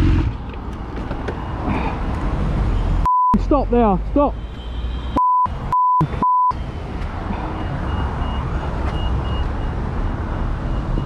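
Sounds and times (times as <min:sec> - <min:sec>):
road noise: 0:00.0 - 0:11.0
censor bleeps: 0:05.2 - 0:06.6.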